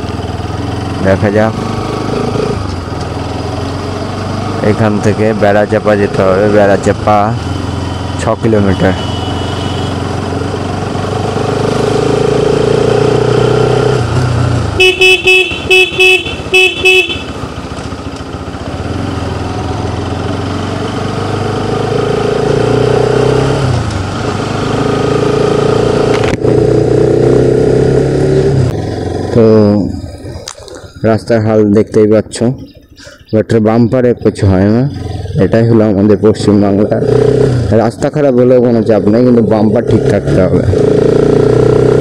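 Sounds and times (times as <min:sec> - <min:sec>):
motorcycle engine accelerating: 0:00.0 - 0:33.2, 0:33.8 - 0:42.0
short loud horn beeps: 0:08.6 - 0:10.0, 0:14.8 - 0:17.4.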